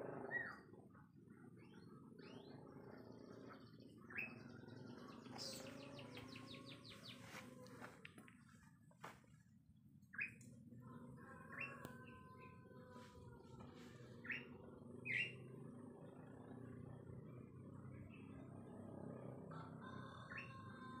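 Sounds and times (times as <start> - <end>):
low background hum: 0.0 - 21.0
rooster crowing: 10.9 - 14.0, 19.5 - 21.0.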